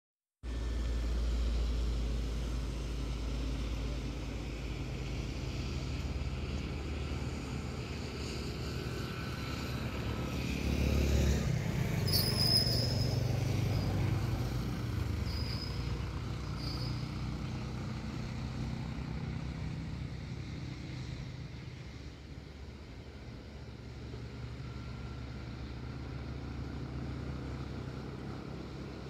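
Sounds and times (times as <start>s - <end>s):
vehicle engine passing: 0.4s - 29.0s.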